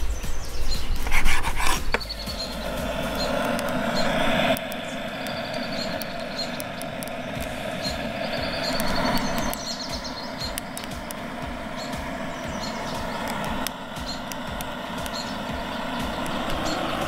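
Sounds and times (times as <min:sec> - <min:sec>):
gas torch hissing: 0:00.0 - 0:17.0.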